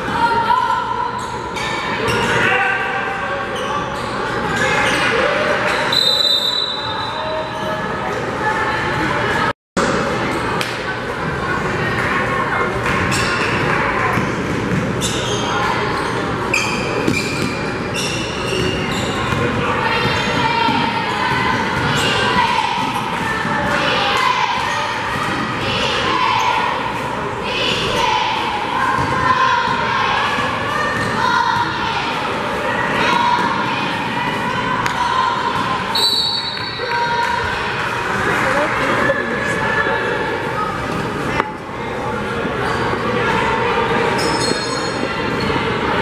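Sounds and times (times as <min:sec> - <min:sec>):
crowd chatter in echoing gym: 0:00.0 - 0:46.0
referee's whistle: 0:05.9 - 0:07.3, 0:35.9 - 0:36.8
sneakers squeaking on hardwood floor: 0:12.9 - 0:23.4, 0:42.6 - 0:43.1, 0:44.1 - 0:45.7.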